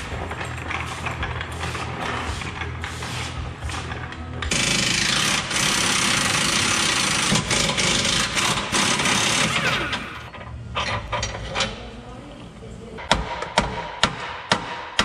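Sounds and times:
air impact wrench: 0.0 - 10.3.

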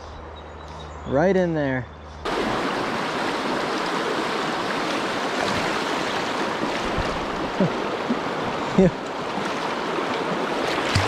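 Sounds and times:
river water rushing over rocks: 2.3 - 11.0
water gurgle: 2.3 - 11.0.

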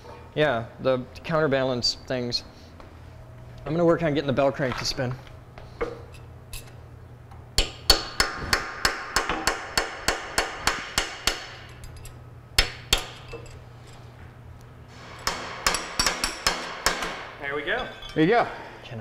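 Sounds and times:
hammer striking steel: 7.6 - 11.8, 15.0 - 17.4.

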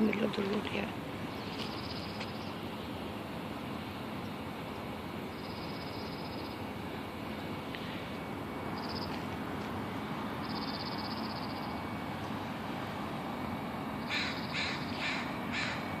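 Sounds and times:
background hiss: 0.0 - 16.0
crow cawing: 14.0 - 15.9.

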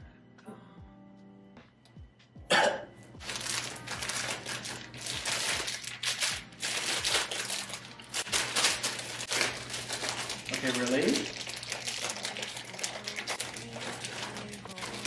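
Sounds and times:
plastic packaging crinkling: 3.2 - 15.0.

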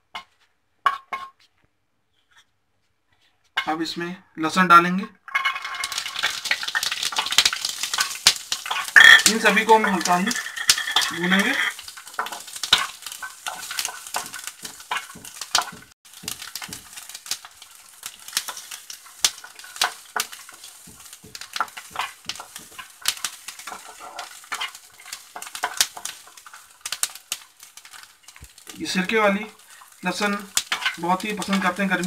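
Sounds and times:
garlic sizzling in oil: 5.3 - 32.0
wooden spatula scraping pan: 7.9 - 32.0.

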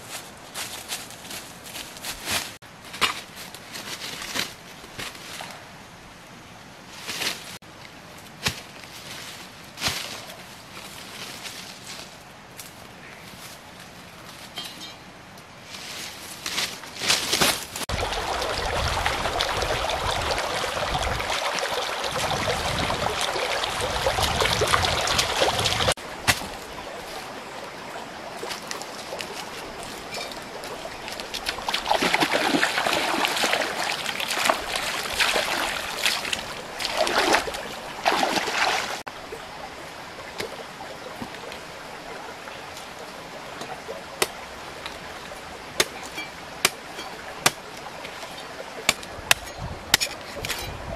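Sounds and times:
stream water running: 13.4 - 50.9.

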